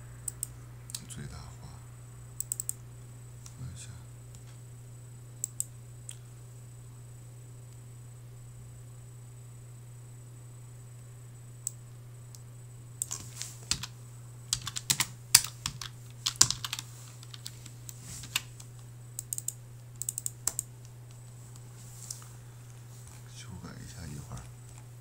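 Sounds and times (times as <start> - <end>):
steady low hum: 0.0 - 25.0
keyboard typing: 2.4 - 2.8, 13.0 - 13.9, 14.5 - 17.6, 18.2 - 20.7.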